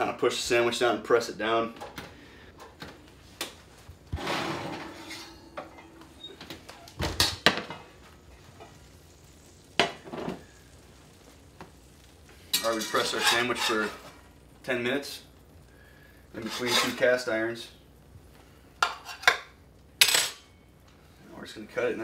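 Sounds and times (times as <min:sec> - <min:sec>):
oven door opening and shutting: 0:04.1 - 0:07.8
cast iron skillets clanking: 0:04.1 - 0:08.9, 0:09.7 - 0:10.6, 0:12.4 - 0:14.8, 0:16.3 - 0:17.3, 0:18.8 - 0:20.6.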